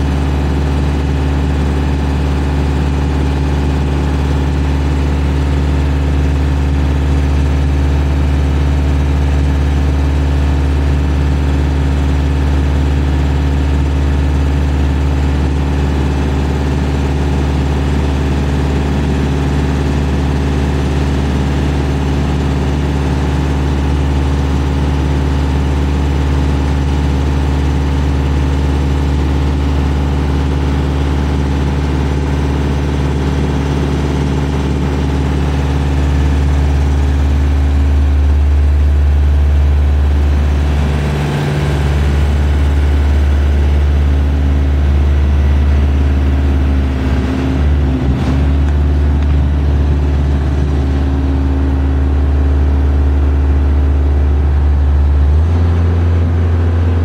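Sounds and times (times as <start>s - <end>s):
boom lift engine running: 0.0s - 57.0s.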